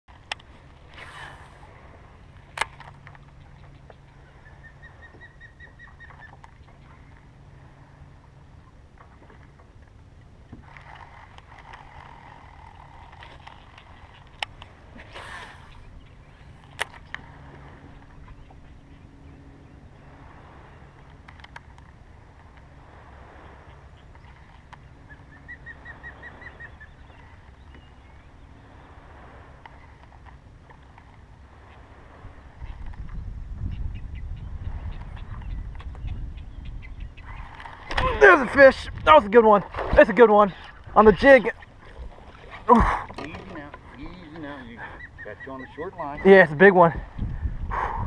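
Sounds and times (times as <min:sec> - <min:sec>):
steady low rumble: 0:00.1 - 0:48.0
fishing reel spool whirring: 0:00.2 - 0:32.8
bird chirping: 0:03.2 - 0:07.0, 0:33.6 - 0:37.5, 0:43.2 - 0:46.5.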